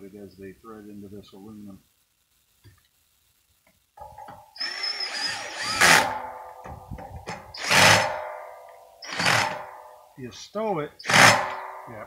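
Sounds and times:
power drill whining: 0:04.6 - 0:06.3, 0:07.3 - 0:08.3, 0:09.0 - 0:09.7, 0:11.0 - 0:11.6.

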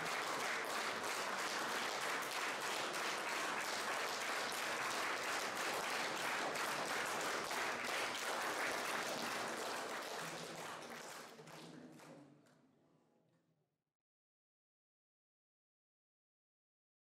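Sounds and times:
audience applauding: 0:00.0 - 0:12.2.

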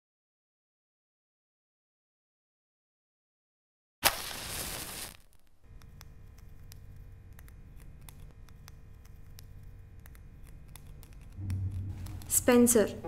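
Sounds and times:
faint low hum: 0:05.6 - 0:13.0.

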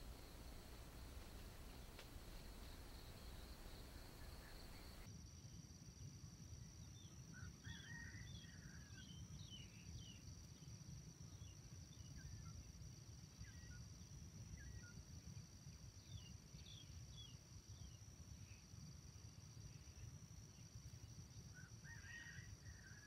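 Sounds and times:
high insect drone: 0:00.0 - 0:05.1
small birds chirping: 0:00.0 - 0:05.1.

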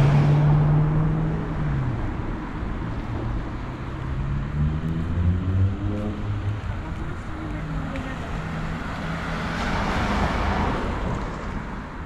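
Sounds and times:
cars driving past on wet street: 0:00.0 - 0:12.0
car engine accelerating: 0:02.9 - 0:07.0.

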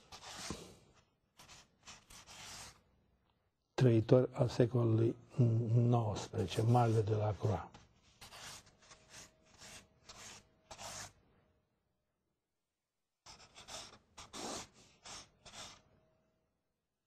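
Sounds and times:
pen scratching on paper: 0:00.1 - 0:00.6, 0:01.4 - 0:02.8, 0:06.6 - 0:11.2, 0:13.2 - 0:15.8.

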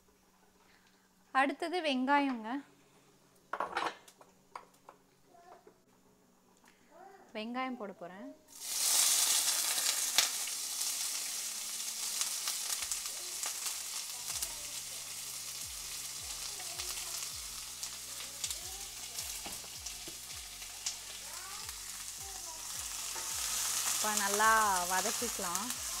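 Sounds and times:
onions sizzling in hot oil: 0:08.5 - 0:26.0.

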